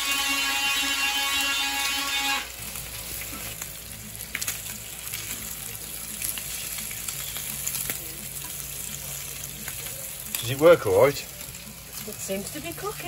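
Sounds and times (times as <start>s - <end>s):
bacon sizzling in frying pan: 0.0s - 13.0s.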